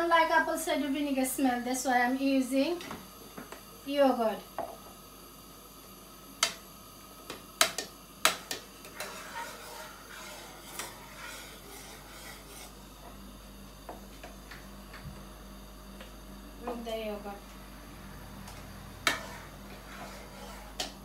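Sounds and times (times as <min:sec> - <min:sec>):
ladle scraping pot bottom: 0:08.8 - 0:12.8, 0:19.1 - 0:21.0.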